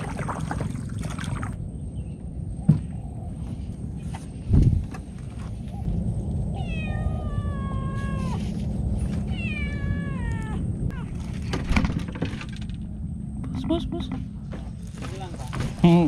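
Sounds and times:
steady low rumble: 0.0s - 15.8s
cat meowing: 6.5s - 8.5s, 9.3s - 11.1s.

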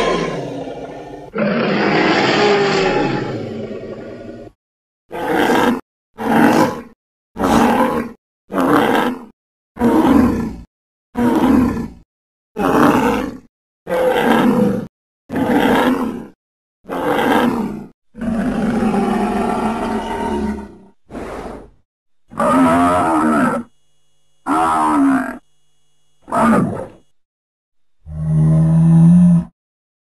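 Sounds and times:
harsh animal calls: 0.0s - 10.6s, 16.9s - 21.6s, 22.3s - 23.7s, 24.4s - 25.4s, 26.2s - 27.0s.

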